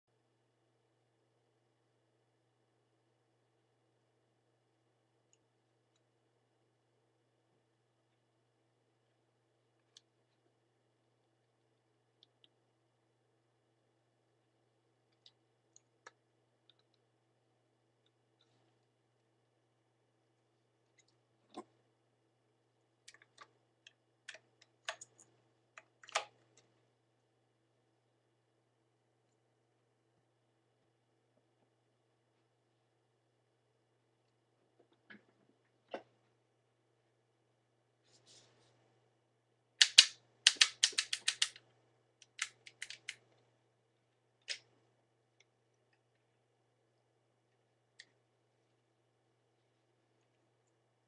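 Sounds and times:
plastic toy model clicks and knocks: 39.8 - 41.6, 42.2 - 43.2.

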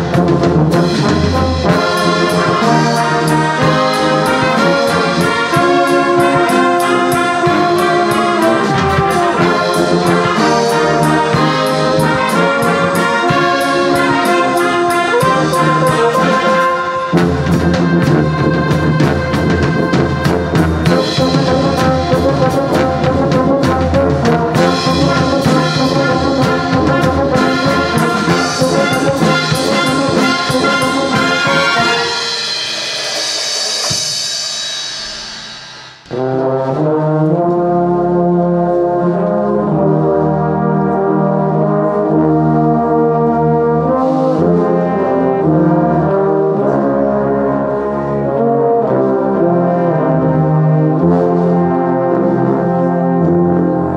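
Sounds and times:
brass band playing a hymn: 0.0 - 34.2, 36.1 - 53.9
percussion strikes: 0.0 - 37.5.

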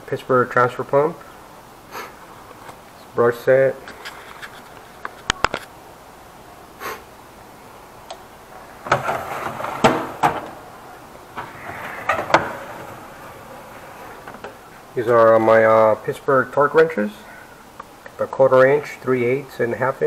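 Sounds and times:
metal drawers sliding: 8.6 - 15.4.

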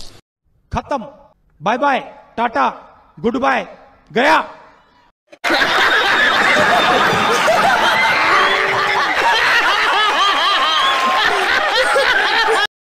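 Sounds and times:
group of people laughing: 5.3 - 12.7.

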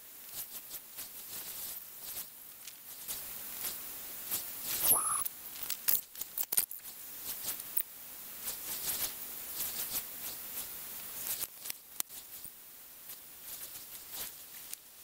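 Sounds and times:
rising squeak: 4.8 - 5.2
hiss: 6.9 - 12.4.

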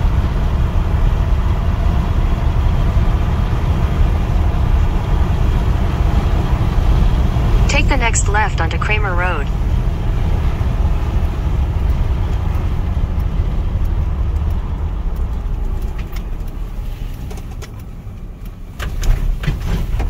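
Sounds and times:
car road and engine rumble: 0.0 - 20.0
light clicks and ticks: 11.2 - 20.0.

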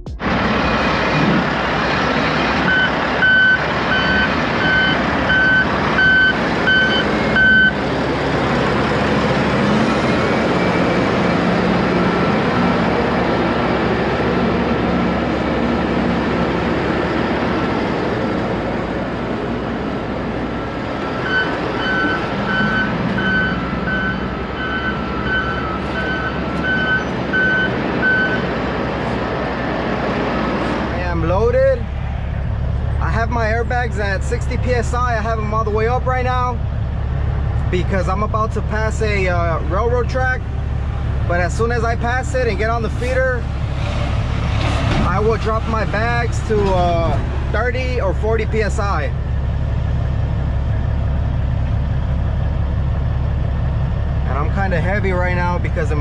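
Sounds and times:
heavy diesel engine running: 0.0 - 56.0
backup alarm beeping: 2.7 - 7.8, 21.0 - 28.5.

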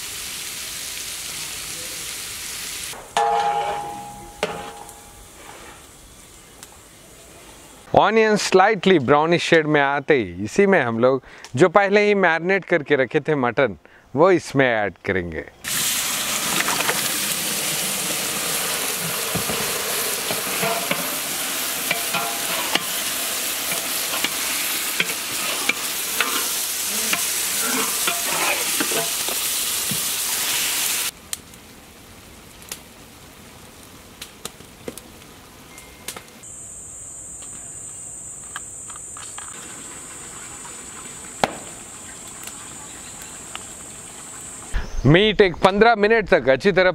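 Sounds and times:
meat sizzling in hot oil: 0.0 - 3.0, 15.6 - 31.2
metal ladle scraping a pot: 20.2 - 21.2, 21.8 - 23.1, 23.7 - 29.3.

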